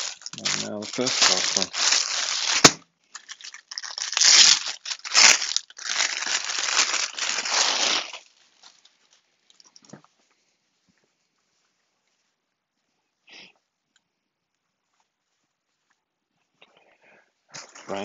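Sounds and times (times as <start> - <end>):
plastic packaging crinkling: 0.0 - 9.7.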